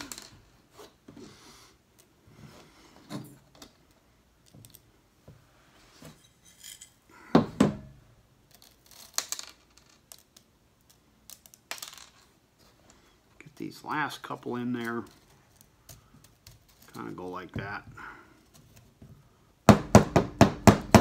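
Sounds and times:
small metal pieces clinking: 6.2 - 7.1, 8.5 - 12.4.

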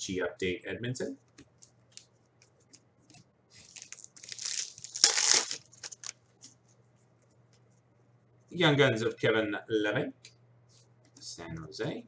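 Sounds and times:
foil wrapper crinkling: 3.6 - 6.2.

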